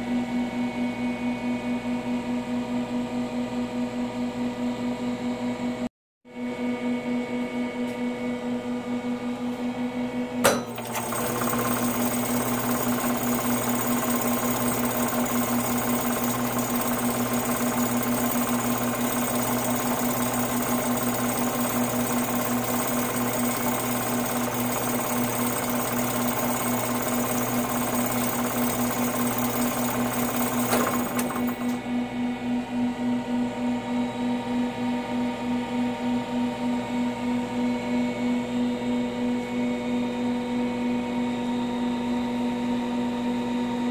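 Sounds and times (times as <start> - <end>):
sharp click: 10.4 - 10.9
electric motor humming: 10.7 - 31.8
rapid mechanical rattle: 10.7 - 31.8.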